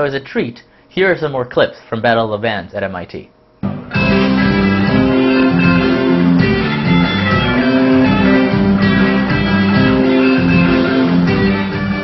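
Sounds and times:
live rock band playing: 3.6s - 12.0s.

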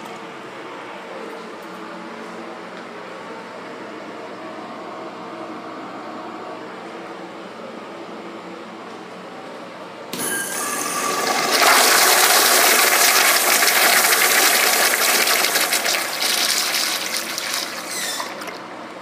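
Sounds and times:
urinal flushing: 10.2s - 18.8s.

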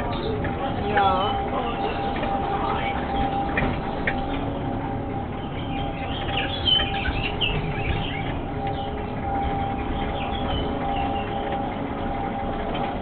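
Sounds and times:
ride car hum and rumble: 0.0s - 13.0s
high bird-like chirps: 5.4s - 11.6s.

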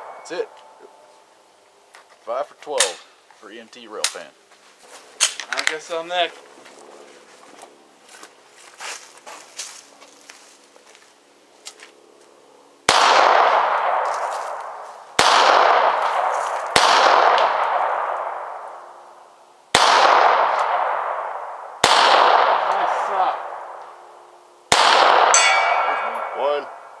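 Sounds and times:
handgun shots echoing: 24.7s - 26.8s.

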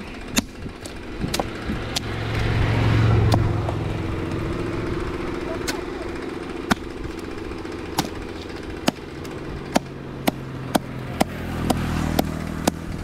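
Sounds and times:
steady engine hum: 0.0s - 13.0s.

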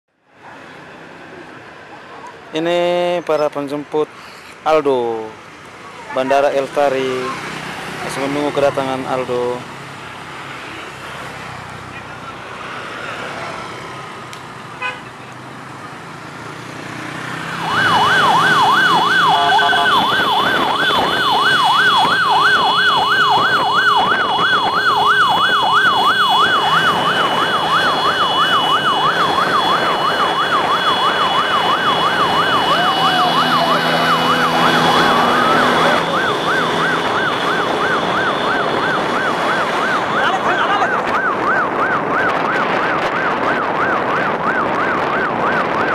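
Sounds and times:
traffic noise: 0.1s - 45.9s
electronic siren yelping: 17.5s - 45.9s
steady high tone: 17.7s - 20.5s.

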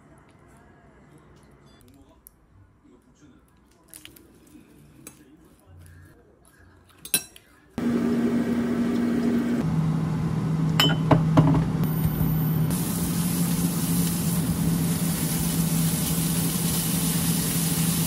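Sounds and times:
kitchen fan humming: 7.8s - 18.0s.

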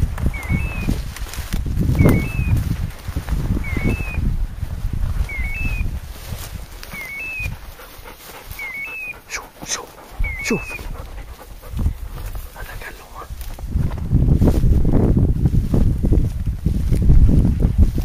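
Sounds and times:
brush rustling: 0.0s - 18.0s.

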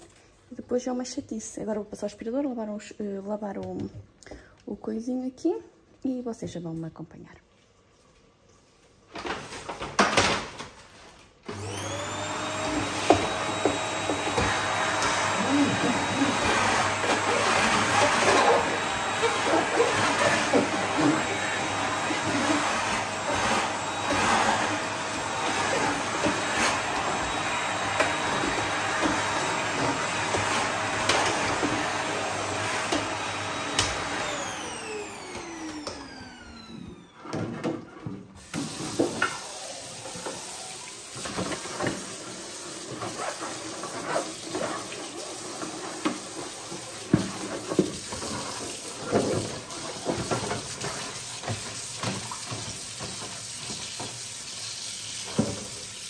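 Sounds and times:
vacuum cleaner running: 11.4s - 56.0s
brush scrubbing: 12.3s - 33.8s, 42.8s - 54.1s
tap water running into sink: 38.4s - 56.0s.

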